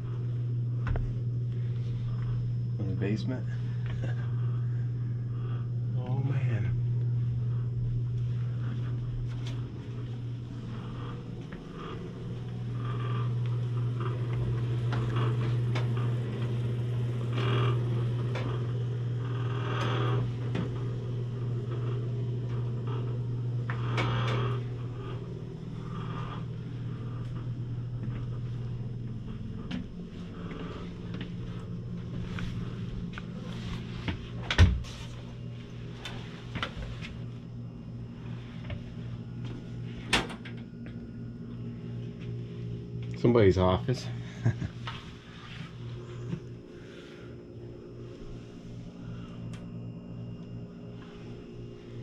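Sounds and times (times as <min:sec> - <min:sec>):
steady low hum: 0:00.0 - 0:52.0.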